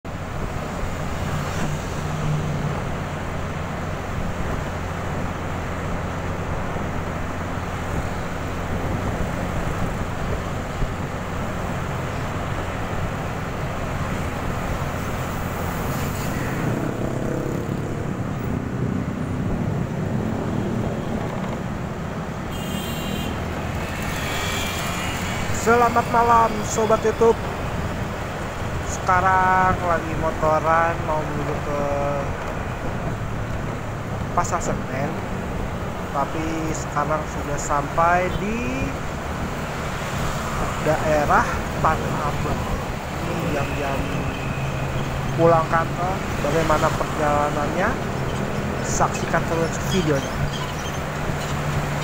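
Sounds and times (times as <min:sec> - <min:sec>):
surrounding traffic: 0:00.0 - 0:52.0
motorbike engine hum: 0:16.6 - 0:28.9.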